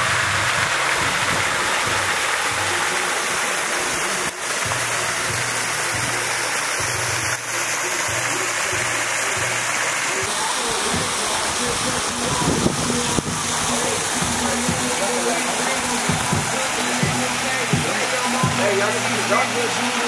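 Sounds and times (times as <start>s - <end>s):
pulsing music bass line: 0.0s - 20.0s
water splashing into pool: 0.0s - 20.0s.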